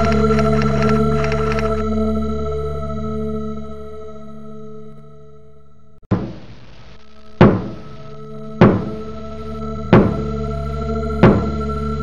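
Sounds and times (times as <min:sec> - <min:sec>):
droning chord: 0:00.0 - 0:12.0
heavy impact hit with echo: 0:06.1 - 0:06.6, 0:07.4 - 0:08.0, 0:08.6 - 0:09.1, 0:09.9 - 0:10.3.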